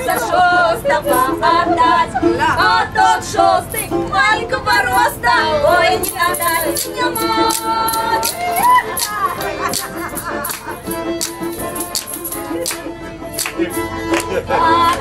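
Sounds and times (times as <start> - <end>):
women singing a folk song: 0.0 - 12.7, 13.4 - 15.0
tambourine jingles: 6.0 - 12.8.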